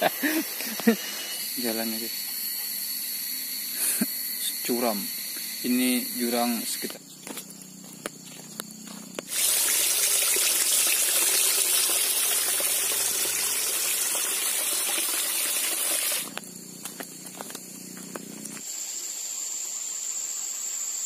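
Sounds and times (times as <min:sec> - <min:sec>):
water pouring onto rock: 0:09.3 - 0:16.3.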